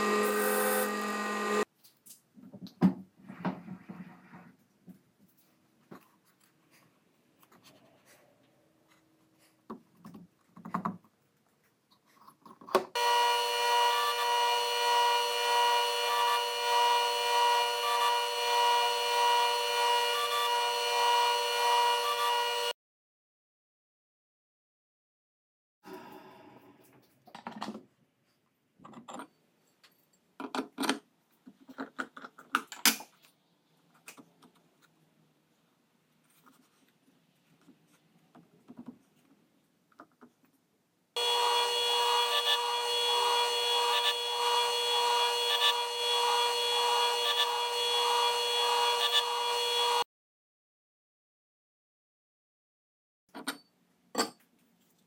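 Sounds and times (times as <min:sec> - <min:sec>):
table saw whining while grinding: 0:00.0 - 0:01.7, 0:13.0 - 0:22.8, 0:41.2 - 0:50.1.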